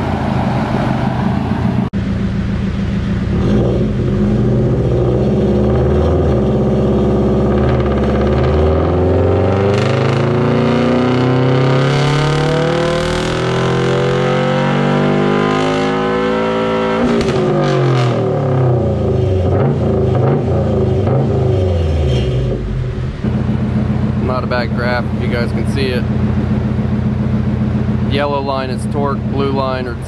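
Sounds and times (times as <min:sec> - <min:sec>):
car engine revving at full throttle: 0:00.0 - 0:30.0
exhaust pops: 0:17.0 - 0:30.0.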